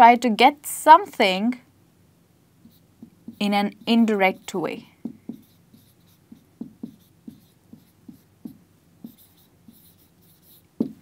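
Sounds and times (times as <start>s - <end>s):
marker squeaking on whiteboard: 2.6s - 11.0s.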